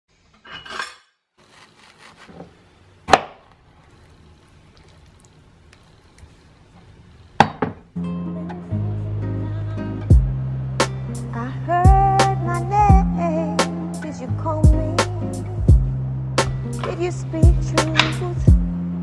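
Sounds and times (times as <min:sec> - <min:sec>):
knife scraping slice: 0:01.4 - 0:02.5.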